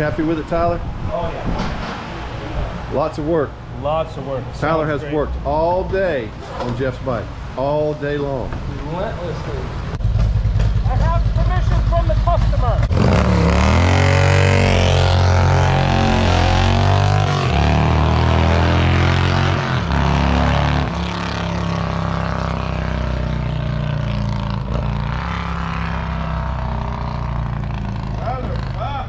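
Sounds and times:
motorcycle accelerating hard: 10.0s - 29.0s.

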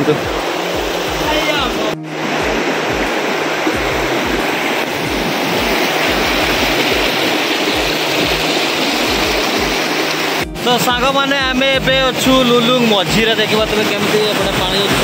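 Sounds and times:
river rapids rushing over rocks: 0.0s - 10.9s.

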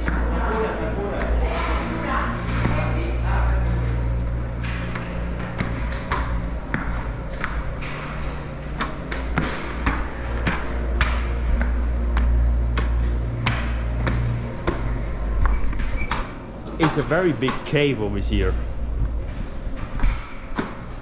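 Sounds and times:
low steady drone: 0.0s - 21.0s.

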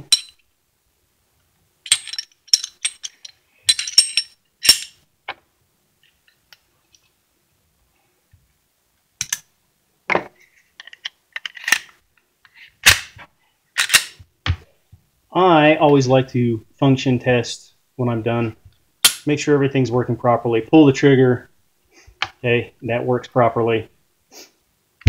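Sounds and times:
metal gun parts clicking: 1.9s - 5.0s, 10.8s - 11.9s, 13.8s - 14.2s.

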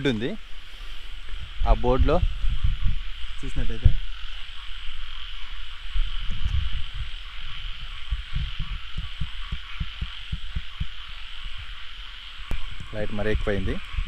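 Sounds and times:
fast low pulses: 5.8s - 11.8s
low thumps: 6.2s - 11.7s.

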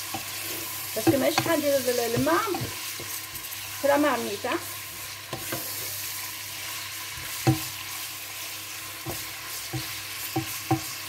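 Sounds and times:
chicken sizzling in hot oil: 0.0s - 11.0s
wooden spatula knocking a pot: 1.0s - 3.2s, 7.4s - 7.7s, 9.0s - 11.0s.

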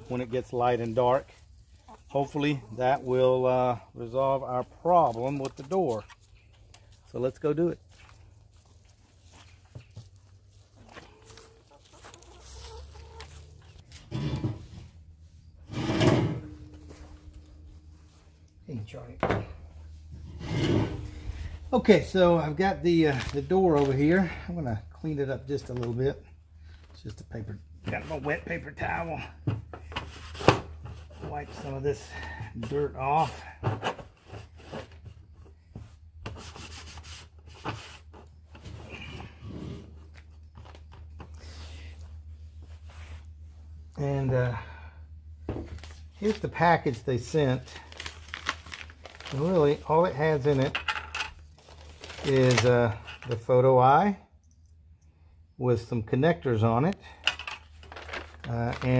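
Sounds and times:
hens clucking: 10.8s - 13.8s.

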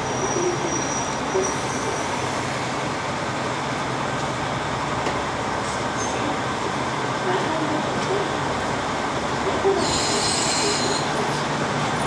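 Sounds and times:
train rolling along track: 0.0s - 12.0s.

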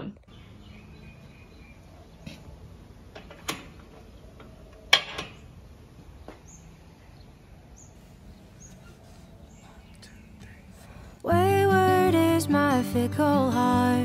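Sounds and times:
bird chirps: 0.2s - 2.6s, 5.4s - 11.1s.

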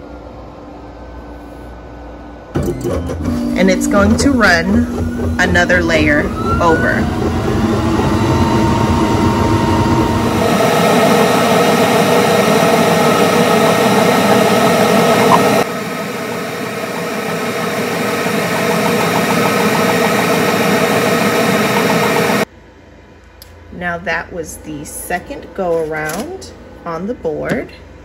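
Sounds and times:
laser engraver whirring: 3.3s - 22.5s.

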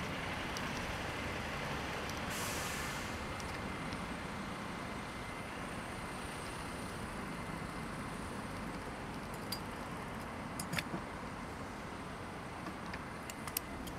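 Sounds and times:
cars driving through junction: 0.0s - 9.0s.

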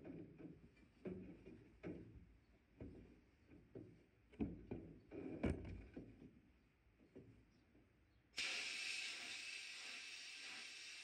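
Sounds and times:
sandblaster hiss: 8.4s - 11.0s.

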